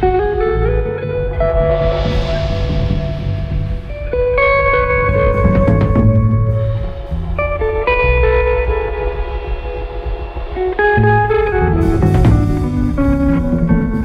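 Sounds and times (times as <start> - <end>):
plucked guitar melody: 0.0 - 14.0.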